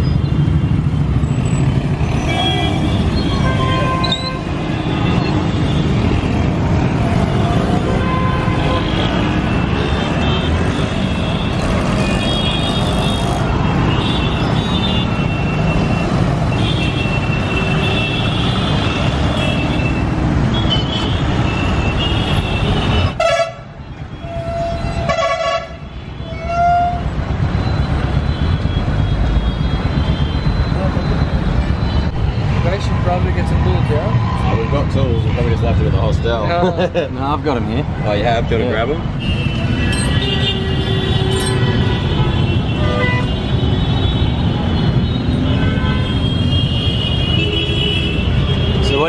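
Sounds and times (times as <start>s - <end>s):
motorbike and vehicle engines: 0.0s - 49.0s
car horns honking: 39.2s - 49.0s.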